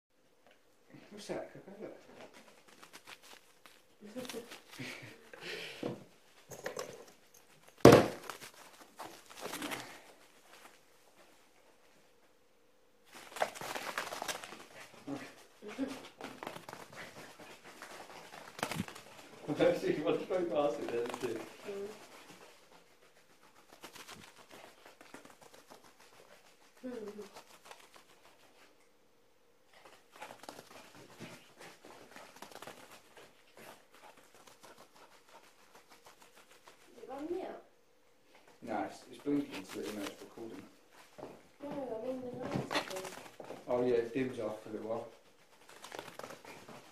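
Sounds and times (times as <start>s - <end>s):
soft movement sounds: 0.5s - 28.9s, 29.6s - 46.9s
footsteps on bare floor: 5.6s - 11.2s, 39.3s - 44.8s.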